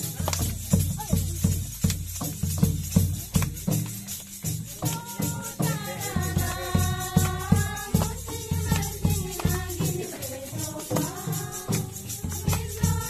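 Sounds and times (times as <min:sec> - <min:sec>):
barrel hand drum beaten: 0:00.0 - 0:13.0
group of voices singing a hymn: 0:04.8 - 0:13.0.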